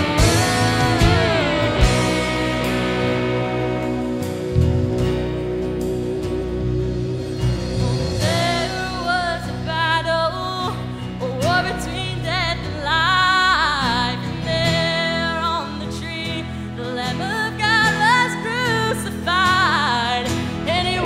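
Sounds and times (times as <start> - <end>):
live band music: 0.0 - 12.8
woman singing with vibrato: 7.2 - 21.0.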